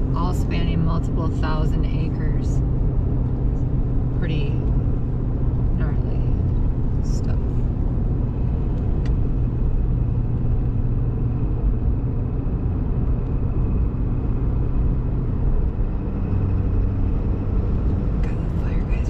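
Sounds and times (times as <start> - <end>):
truck engine and road noise: 0.0 - 19.0.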